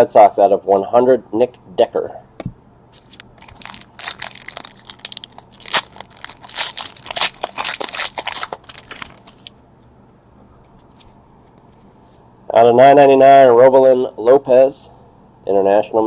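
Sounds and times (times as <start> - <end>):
foil wrapper crinkling: 3.0 - 9.5.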